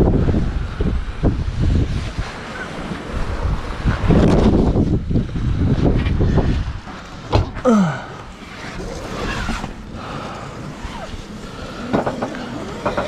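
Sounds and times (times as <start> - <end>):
wind rushing: 0.0 - 11.8
waves against a hull: 0.0 - 13.0.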